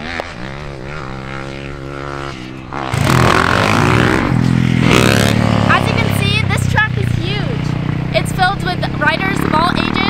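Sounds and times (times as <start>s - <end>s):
motor running and revving: 0.0s - 10.0s
rough engine sound: 0.0s - 10.0s.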